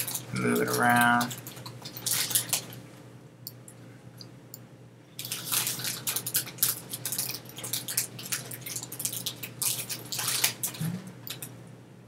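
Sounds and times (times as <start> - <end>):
chips bag crinkling: 0.0 - 2.8, 5.2 - 11.5.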